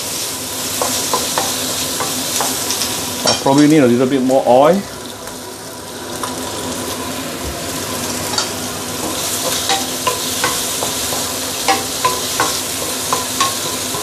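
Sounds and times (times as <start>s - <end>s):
food sizzling in oil: 0.0s - 14.0s
wooden spatula knocking on wok: 9.1s - 14.0s.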